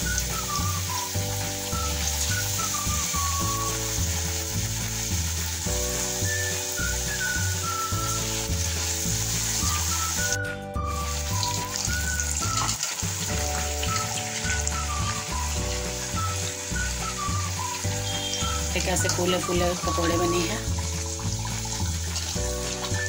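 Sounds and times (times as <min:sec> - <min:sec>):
food deep-frying in hot oil: 0:00.0 - 0:23.0
slow background music: 0:00.0 - 0:23.0.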